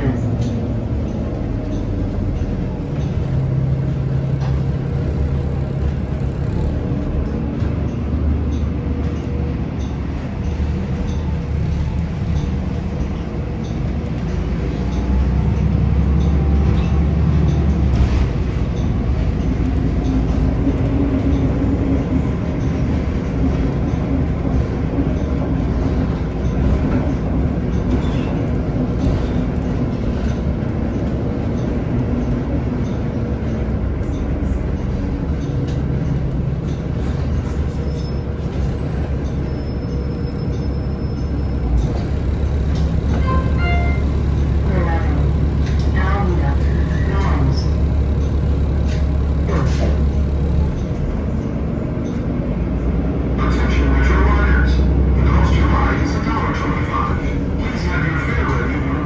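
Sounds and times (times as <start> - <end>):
bus engine drone: 0.0 - 59.0
humming tone: 39.0 - 51.4.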